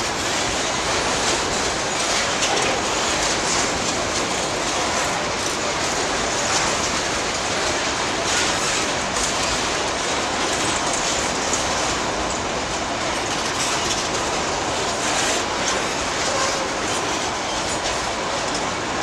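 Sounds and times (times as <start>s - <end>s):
rail clacks: 0.0s - 19.0s
steel train wheels on rails: 0.0s - 19.0s.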